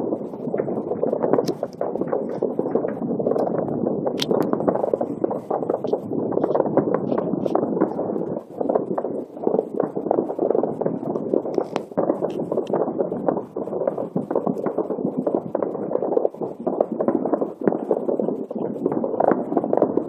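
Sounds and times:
distant fireworks bangs and pops: 0:00.3 - 0:13.3.

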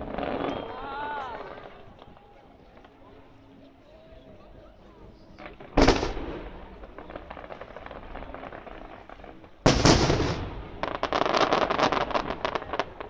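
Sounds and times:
crackling firework pops: 0:05.4 - 0:13.0.

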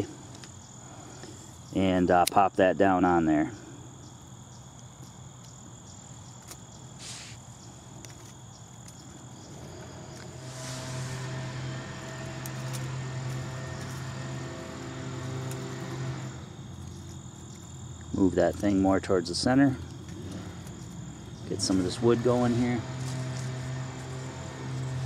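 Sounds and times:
crickets trilling: 0:00.0 - 0:25.0
twig fire crackling: 0:06.4 - 0:21.6
low steady drone: 0:09.6 - 0:16.6.

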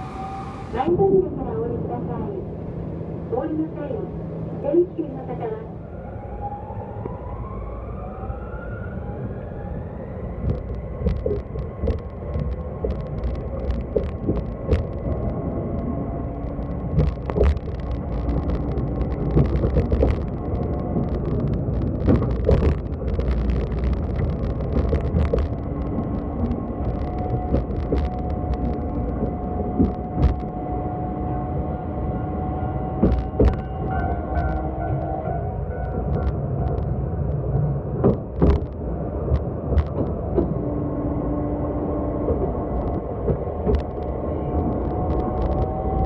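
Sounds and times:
tram rumble: 0:00.0 - 0:46.0
wheels clicking and knocking over rails: 0:10.4 - 0:30.6, 0:32.9 - 0:35.1.

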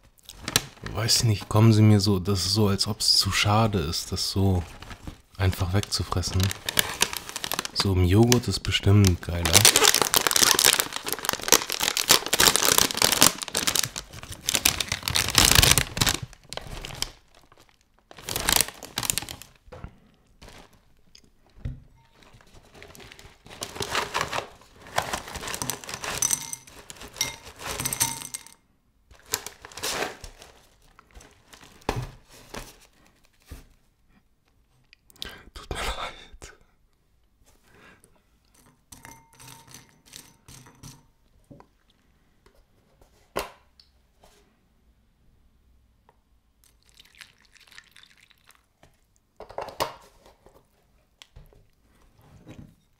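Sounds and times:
packaging tearing and crinkling: 0:04.7 - 0:19.6, 0:22.6 - 0:27.8, 0:29.1 - 0:32.9.

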